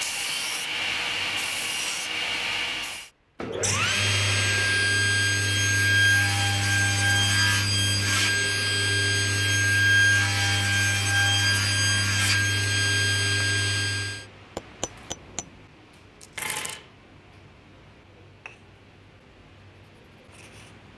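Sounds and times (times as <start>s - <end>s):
table saw hum and whine: 0.0s - 14.3s.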